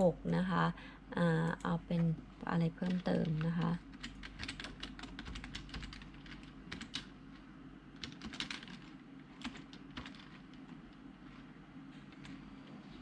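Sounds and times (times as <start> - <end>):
low steady hum: 0.0 - 13.0
keyboard typing: 2.8 - 7.1, 8.0 - 10.6.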